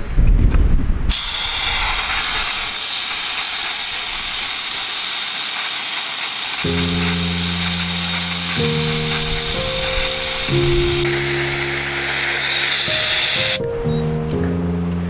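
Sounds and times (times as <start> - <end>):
air hissing from tyres: 1.1 - 13.6
background music with low notes: 6.7 - 15.0.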